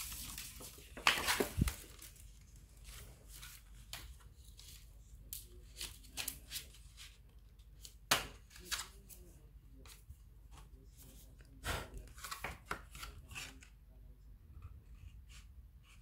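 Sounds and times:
thin plastic sheet crackling: 0.0s - 6.7s.

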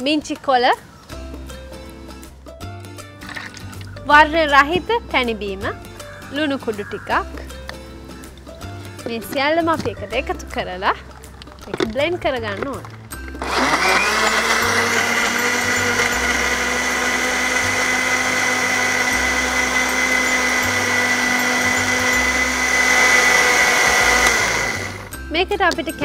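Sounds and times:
blender crushing ice: 13.3s - 25.1s.

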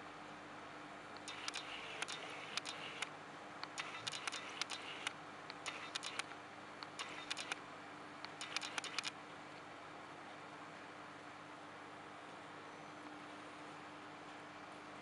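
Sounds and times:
steady low hum: 0.0s - 15.0s
sharp clicks in clusters: 1.2s - 7.6s, 8.2s - 9.2s.

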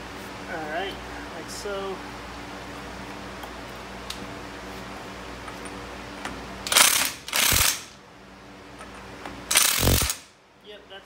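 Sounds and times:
ratchet wrench clicking: 6.7s - 7.9s, 9.5s - 10.3s.

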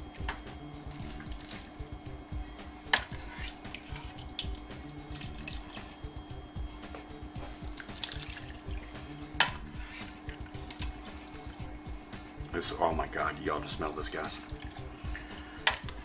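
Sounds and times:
liquid pouring and dripping: 0.0s - 16.0s
ladle knocking against pot: 9.4s - 9.7s.

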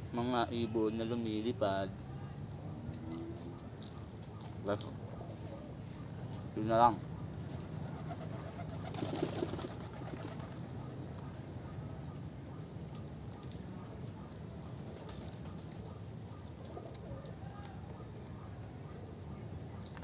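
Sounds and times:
faint outdoor background noise: 0.0s - 20.0s
dove cooing: 7.2s - 19.5s.

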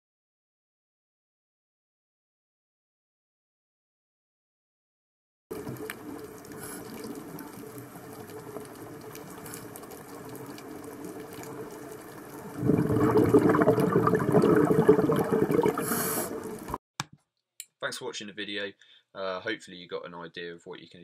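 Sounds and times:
bubbling rush: 5.5s - 16.8s
muffled underwater water wash: 5.5s - 16.8s.

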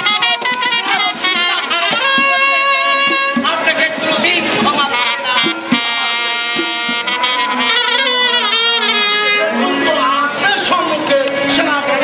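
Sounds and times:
wind instrument wavering melody: 0.0s - 3.6s, 4.8s - 9.8s.

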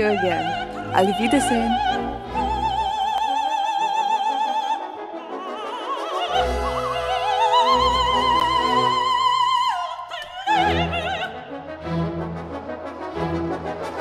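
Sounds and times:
orchestra playing: 0.0s - 3.1s, 10.6s - 14.0s
operatic soprano singing: 0.0s - 11.9s.

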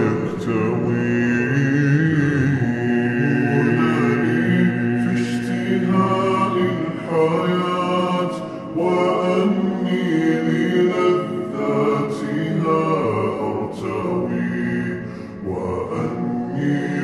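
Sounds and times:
male voices chanting a cappella: 0.0s - 17.0s.

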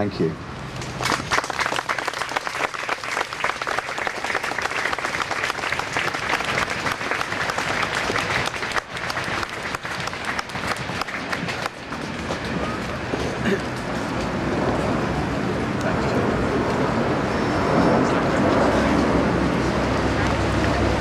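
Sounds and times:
crowd applauding: 0.8s - 13.0s.

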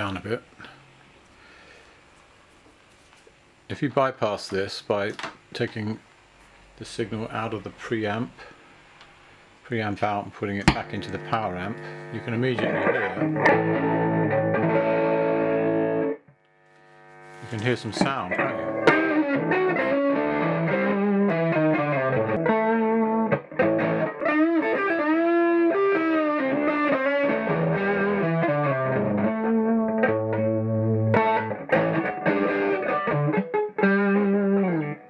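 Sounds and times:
distorted electric guitar: 9.5s - 35.0s.

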